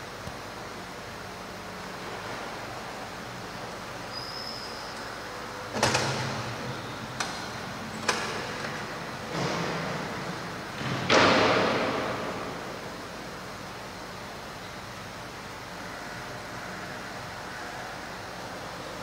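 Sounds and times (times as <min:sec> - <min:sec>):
knocks and bangs echoing in church: 0:10.8 - 0:12.9.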